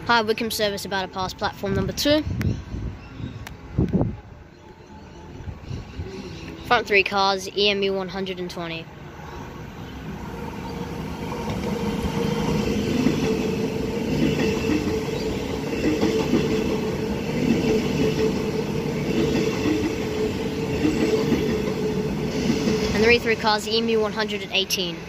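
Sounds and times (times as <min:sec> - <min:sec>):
train wheels rumbling on rails: 0:10.0 - 0:25.0.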